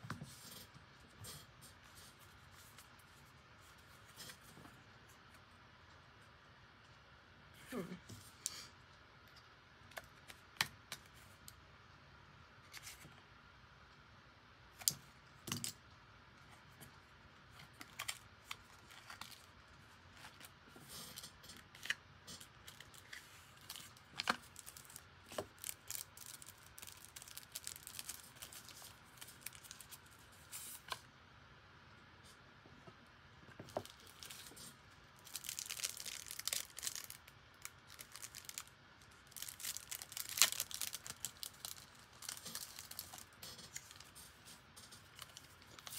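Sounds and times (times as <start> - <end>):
plastic packaging crinkling: 17.6 - 31.0, 33.6 - 45.9.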